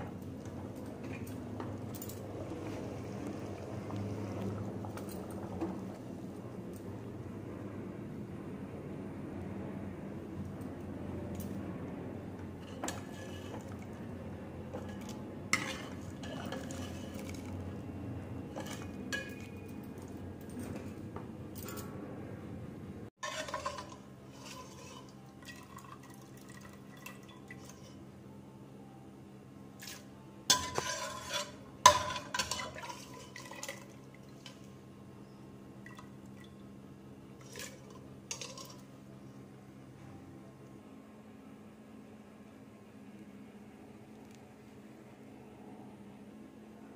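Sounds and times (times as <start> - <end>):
pot boiling: 0.0 - 7.4, 11.9 - 21.4, 23.2 - 28.2, 29.7 - 39.2
ladle clinking and scraping pot: 12.6 - 17.8, 18.4 - 21.0, 23.2 - 28.0, 29.8 - 34.7, 37.4 - 38.9.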